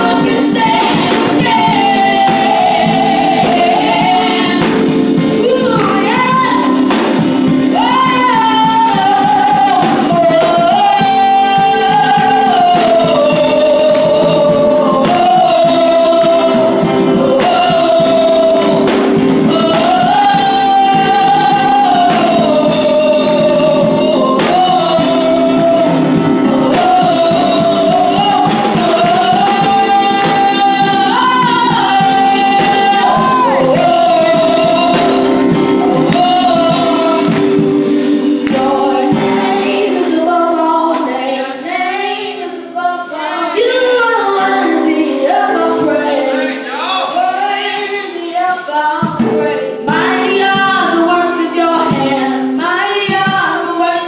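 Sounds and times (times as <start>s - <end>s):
solo voice singing through microphone: 0.0s - 41.9s, 42.6s - 54.0s
sustained accompaniment chords: 0.0s - 42.0s.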